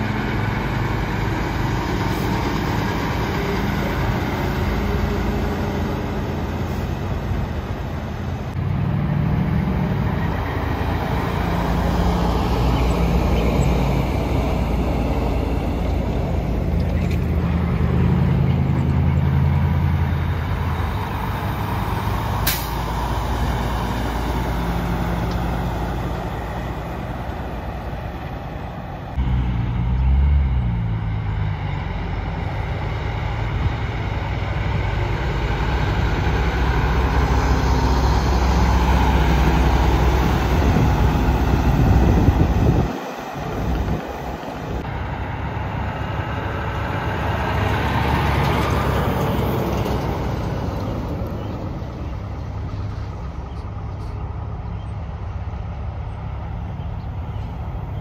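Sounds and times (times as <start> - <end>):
truck engines pulling away: 0.0 - 58.0.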